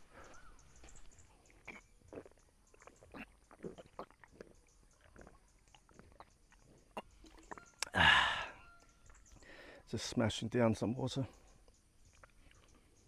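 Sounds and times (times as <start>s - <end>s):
person gulping water: 1.4s - 8.6s
loud breath out: 7.9s - 8.6s.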